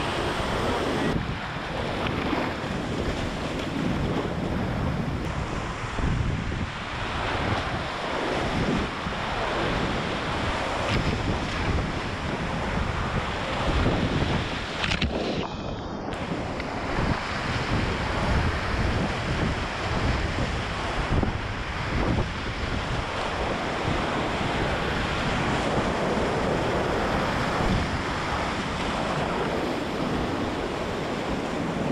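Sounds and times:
whitewater rapids rushing: 0.0 - 5.9.

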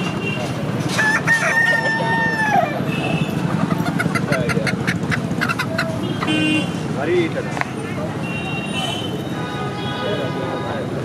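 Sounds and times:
steady background noise: 0.0 - 11.0
rooster crowing: 1.0 - 2.8.

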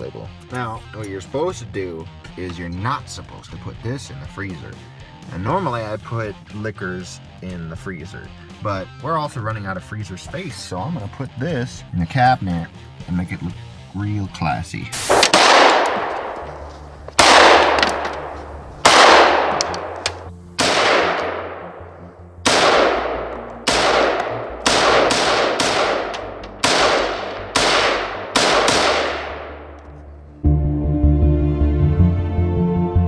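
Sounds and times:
echoing gunshots: 15.0 - 29.8.

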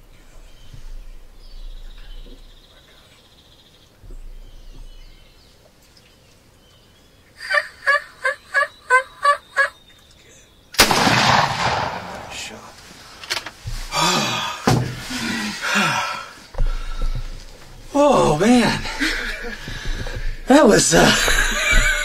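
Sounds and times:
turkey gobbling: 7.4 - 9.8.

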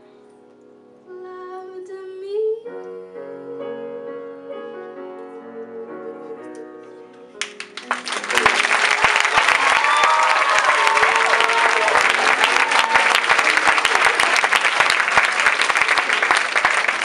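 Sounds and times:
grand piano chords: 0.0 - 9.8
applause: 7.4 - 17.0.

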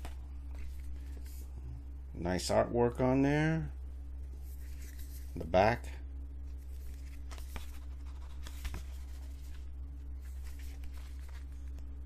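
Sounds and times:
steady low hum: 0.0 - 12.0
cardboard packaging rustling: 6.6 - 11.8.

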